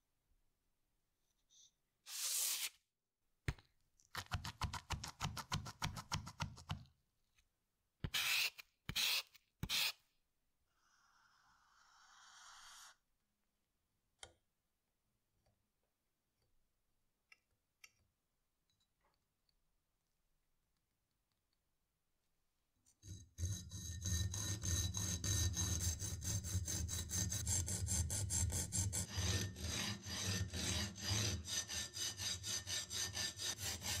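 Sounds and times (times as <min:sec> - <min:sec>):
marker dragged across cardboard: 0:02.1 - 0:02.8.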